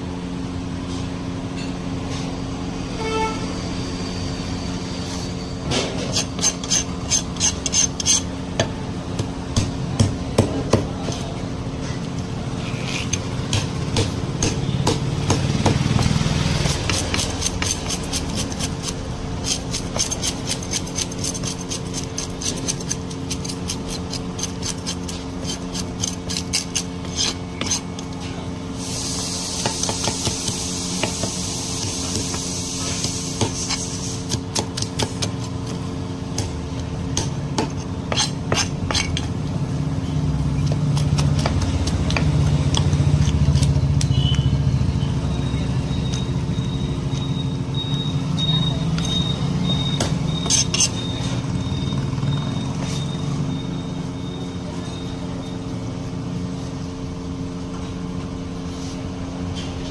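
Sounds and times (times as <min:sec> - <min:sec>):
knife scraping fish scales: 0:05.0 - 0:08.4, 0:12.4 - 0:13.7, 0:15.9 - 0:36.5, 0:37.1 - 0:39.4, 0:40.4 - 0:44.5, 0:50.4 - 0:51.0.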